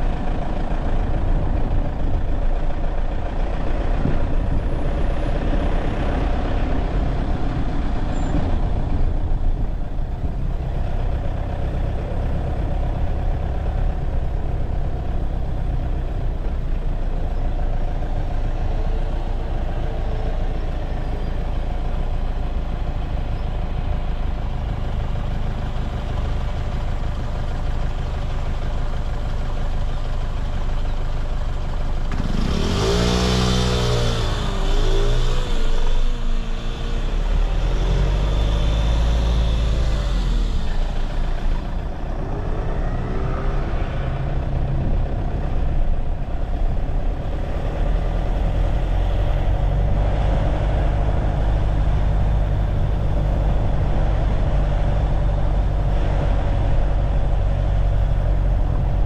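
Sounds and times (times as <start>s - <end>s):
traffic engine and road rumble: 0.0s - 59.0s
engine revving: 32.1s - 45.6s.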